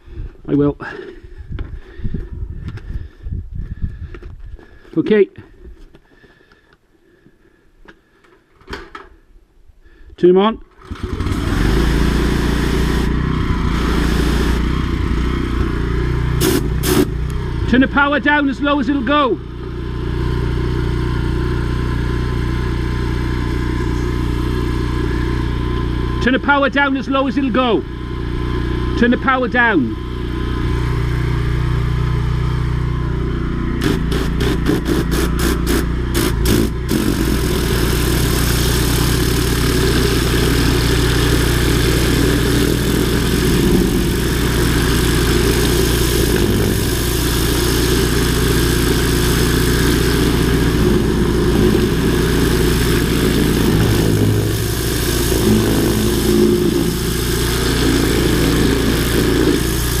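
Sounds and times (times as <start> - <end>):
machine engine running: 10.8 - 60.0
high-pressure water hiss: 16.4 - 17.1, 33.8 - 60.0
rapid sharp pulses: 33.8 - 60.0.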